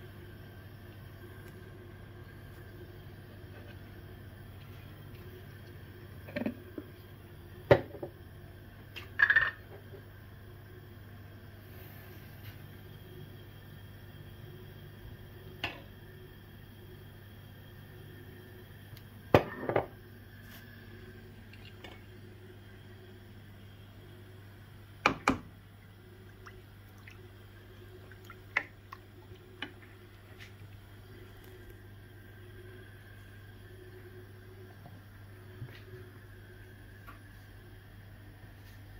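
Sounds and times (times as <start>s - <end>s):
faint steady hum: 0.0s - 38.9s
drips and small clicks: 21.5s - 22.1s, 26.3s - 27.3s, 28.0s - 29.8s.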